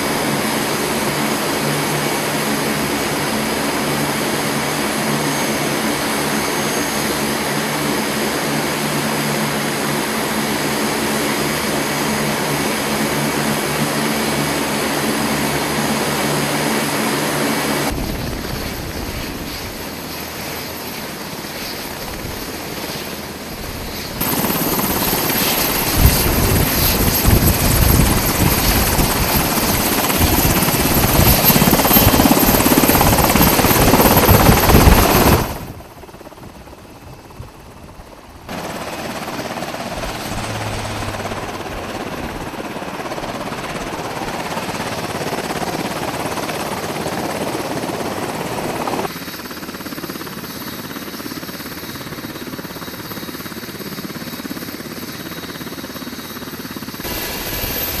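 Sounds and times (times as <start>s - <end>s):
helicopter rotor drone: 0.0s - 58.0s
turbine whine: 17.7s - 37.5s, 38.5s - 44.4s, 57.0s - 58.0s.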